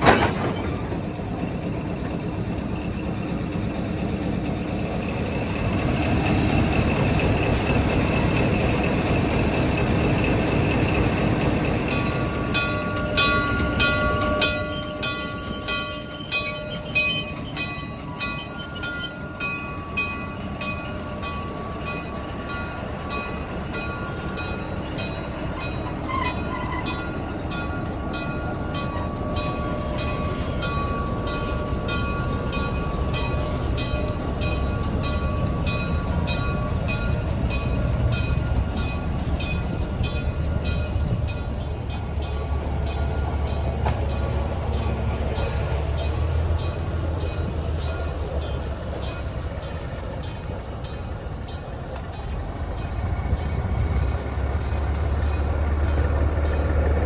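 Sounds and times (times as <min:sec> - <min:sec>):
wheels squealing: 0:00.0 - 0:01.0, 0:05.3 - 0:34.1, 0:53.2 - 0:56.7
train rolling on rails: 0:00.0 - 0:57.0.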